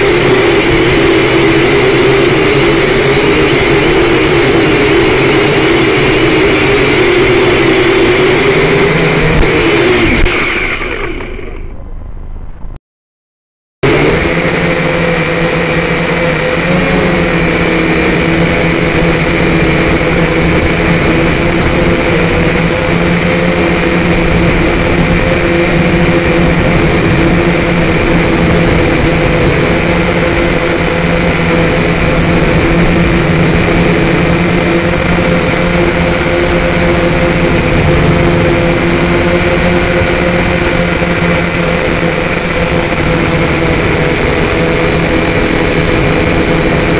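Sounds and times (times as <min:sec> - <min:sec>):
drone motors whining: 0:00.0 - 0:12.7, 0:13.8 - 0:46.9.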